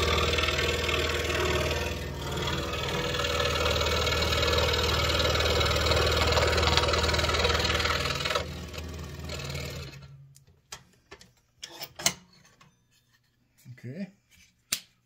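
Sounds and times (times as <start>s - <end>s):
scroll saw cutting wood: 0.0s - 10.2s.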